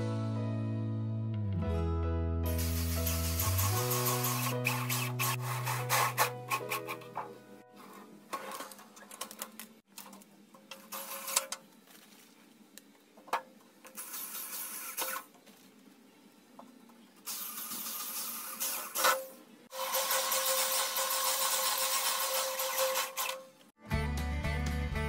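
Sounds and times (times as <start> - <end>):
drill driving screws into metal: 2.5 - 7.3.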